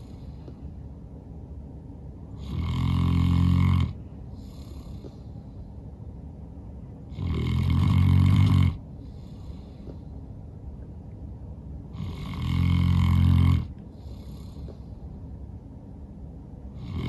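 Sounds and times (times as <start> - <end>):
dog snoring loudly: 2.4 - 5.2, 7.1 - 9.7, 11.9 - 14.7, 16.8 - 17.0
soft breath out: 4.3 - 5.8, 8.9 - 10.3, 13.8 - 15.2.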